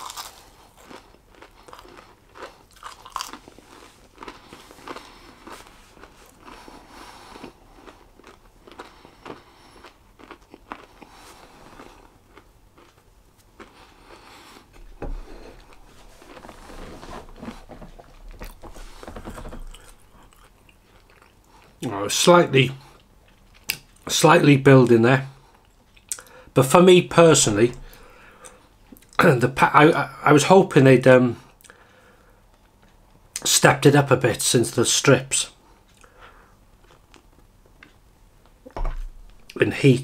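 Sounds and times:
person chewing crunchy food: 0.0s - 21.8s, 35.9s - 39.6s.

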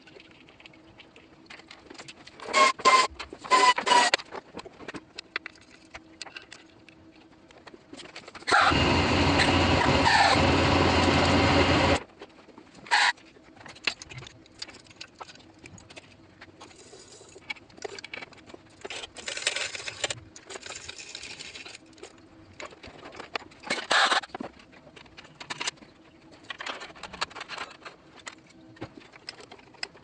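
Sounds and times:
loud steady whirring: 8.5s - 12.0s.

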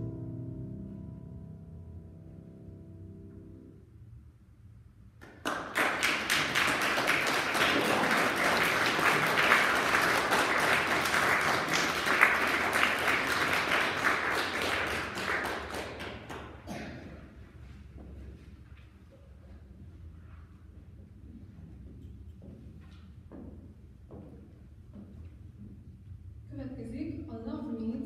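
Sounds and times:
grand piano chord: 0.0s - 3.9s
audience applause: 5.2s - 16.8s.

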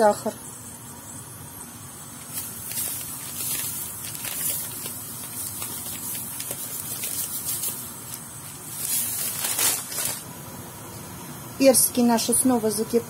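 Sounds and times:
sugar pouring into pot: 2.0s - 10.3s.

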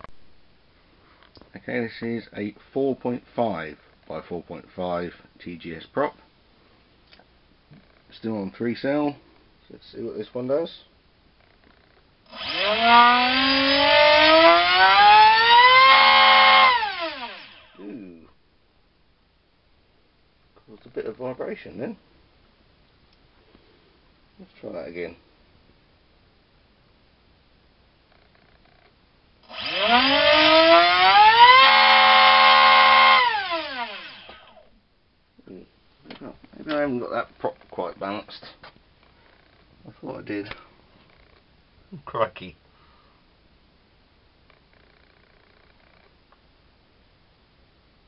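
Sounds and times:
electric motor whine with propeller: 12.3s - 17.8s, 29.5s - 34.6s.

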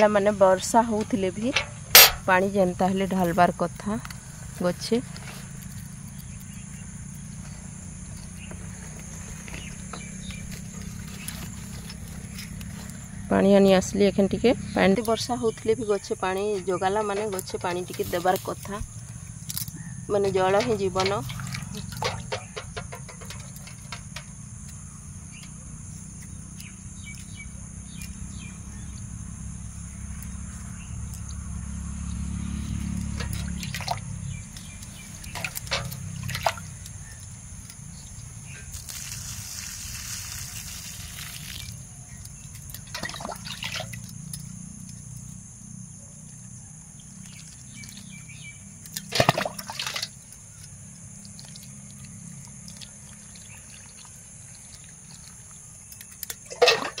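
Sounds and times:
water trickling onto soil: 2.9s - 13.2s, 14.9s - 24.8s, 32.4s - 45.2s, 47.0s - 57.0s.

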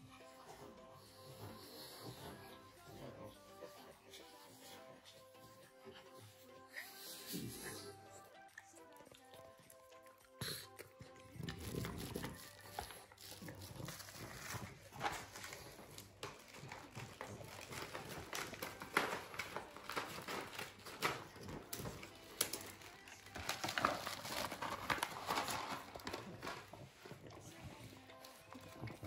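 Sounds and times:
dog sniffing and eating: 0.0s - 29.0s
plastic packaging crinkling: 11.4s - 26.8s.

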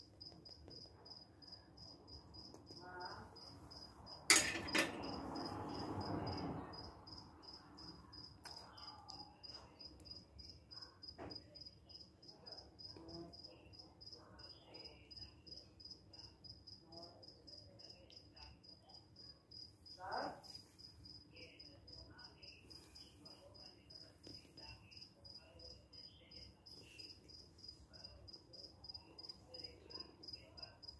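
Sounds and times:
cricket chirping: 0.0s - 30.9s.

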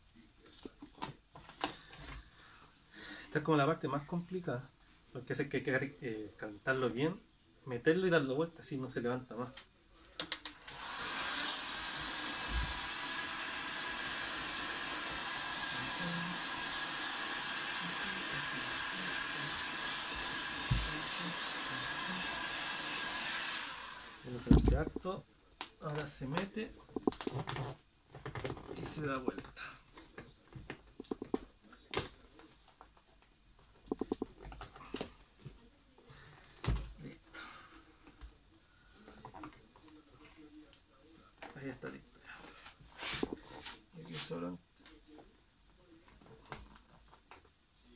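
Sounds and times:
heat gun fan blowing: 10.7s - 24.2s
vinyl film crackling and tapping: 24.5s - 29.4s, 30.2s - 34.8s.

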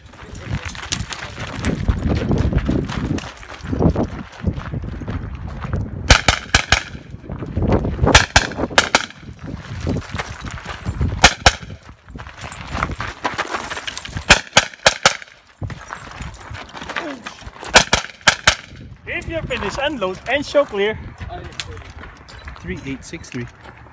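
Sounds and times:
pistol shots: 6.1s - 7.1s, 8.1s - 9.2s, 11.2s - 11.8s, 14.3s - 15.4s, 17.7s - 18.8s.

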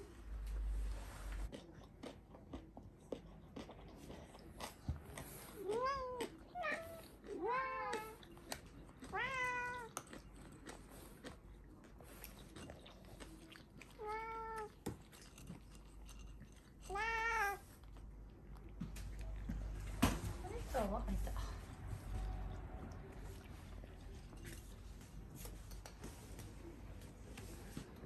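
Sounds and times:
cat meowing: 9.0s - 10.0s, 14.0s - 14.7s, 16.9s - 17.7s.

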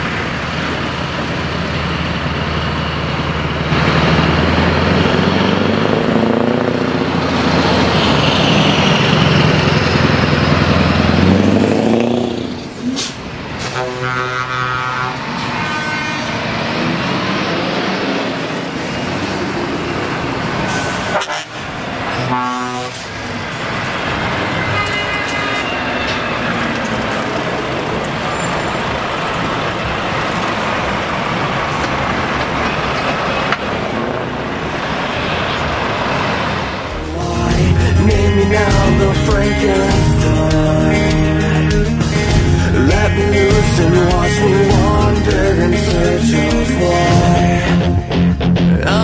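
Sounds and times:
heavy trucks engine rumble: 0.0s - 49.0s
truck air horn: 13.0s - 16.6s, 20.7s - 23.2s, 24.3s - 26.3s.

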